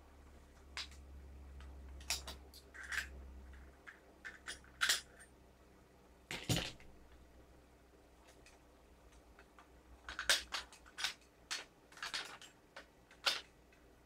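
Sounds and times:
small metal parts clinking: 0:02.0 - 0:05.3, 0:08.3 - 0:13.8.

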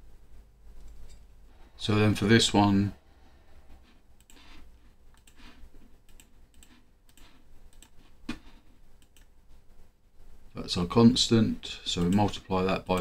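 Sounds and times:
computer input clicks: 0:06.1 - 0:07.9, 0:11.9 - 0:13.0.

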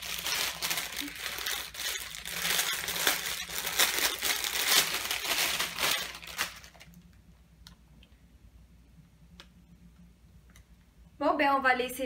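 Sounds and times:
plastic bag crinkling: 0:00.0 - 0:07.1.

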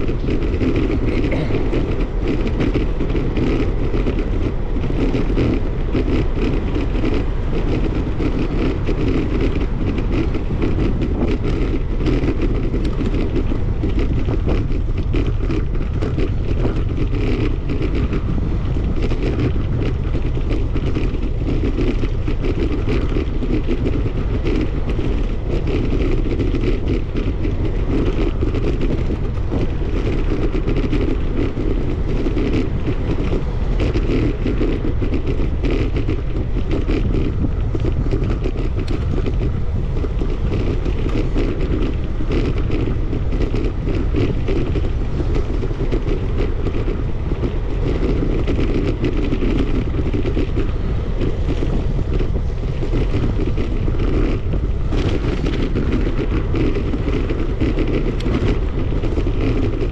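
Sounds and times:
bicycle clicks and rattles: 0:00.0 - 0:59.9
wind rushing on microphone: 0:00.0 - 0:59.9.

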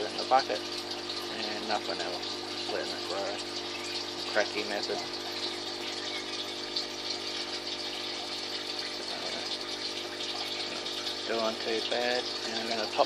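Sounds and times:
pump electric hum: 0:00.0 - 0:13.0
running water: 0:00.0 - 0:13.0.

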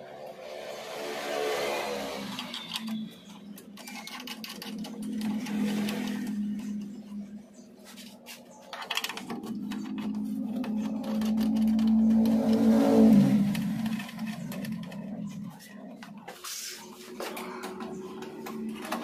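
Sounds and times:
machine motor humming and winding down: 0:00.1 - 0:07.8, 0:08.9 - 0:16.2
clattering and clicks: 0:02.2 - 0:19.0.

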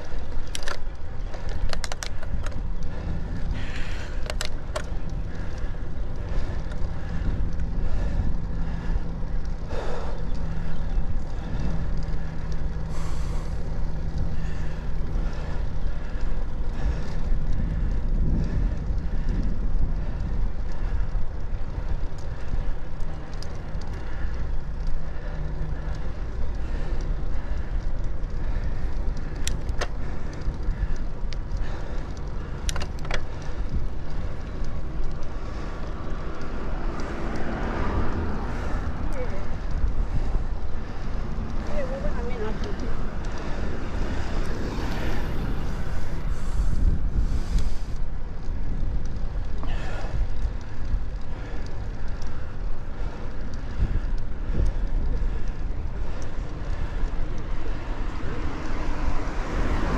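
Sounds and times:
sharp clicks: 0:00.0 - 0:07.7, 0:20.2 - 0:41.7
low road rumble: 0:00.0 - 0:59.9
vehicle engine hum: 0:00.0 - 0:59.9.

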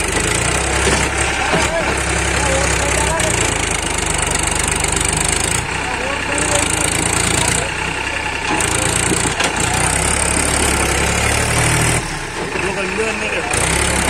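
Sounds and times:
tractor diesel engine under load: 0:00.0 - 0:14.0.

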